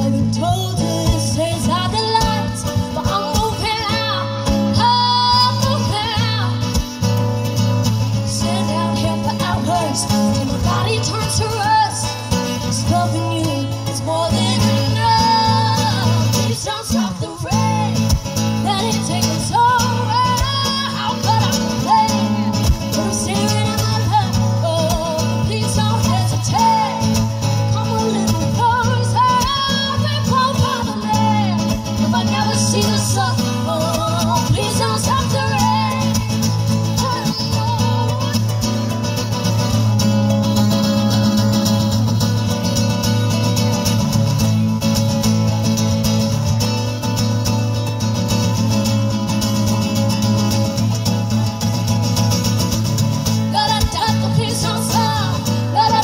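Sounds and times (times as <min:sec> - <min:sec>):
women singing: 0:00.0 - 0:06.8, 0:08.1 - 0:39.0, 0:53.3 - 0:56.0
acoustic guitars playing: 0:00.0 - 0:56.0.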